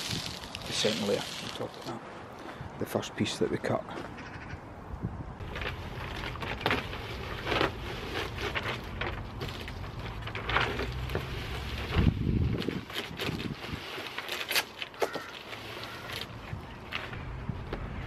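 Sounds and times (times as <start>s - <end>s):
wind on microphone: 4.4s - 5.4s, 11.8s - 13.9s
foil insulation crackling: 5.4s - 16.4s.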